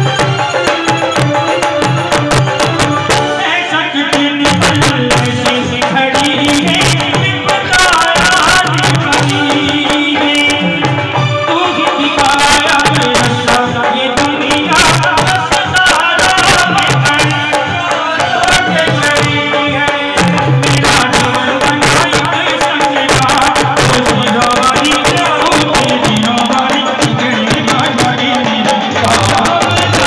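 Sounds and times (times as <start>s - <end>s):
drums with steady beat: 0.0s - 30.0s
man singing into a microphone: 0.0s - 30.0s.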